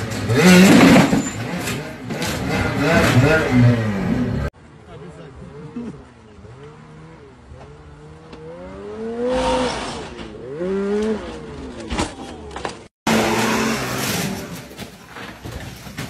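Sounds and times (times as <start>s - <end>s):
snowmobile engine revving: 0.0s - 4.5s, 5.2s - 11.9s, 13.1s - 14.6s.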